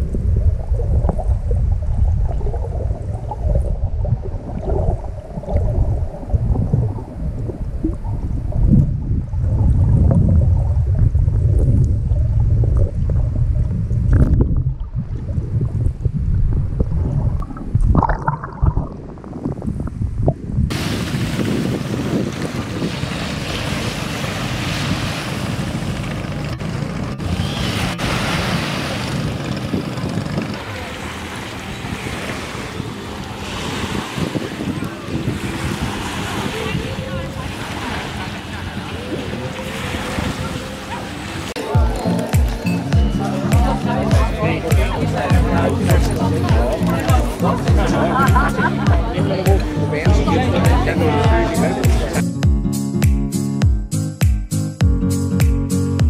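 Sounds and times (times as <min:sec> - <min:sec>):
gush of bubbles: 0:00.0 - 0:19.5
underwater rumbling water: 0:00.0 - 0:49.5
wind and surf hiss: 0:19.0 - 0:45.3.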